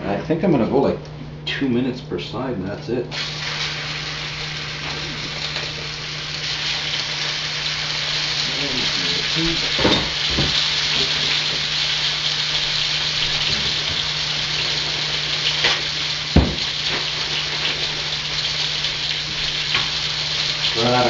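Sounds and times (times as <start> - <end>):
meat sizzling in a pan: 3.1 - 21.0
sharp knock: 16.4 - 16.6.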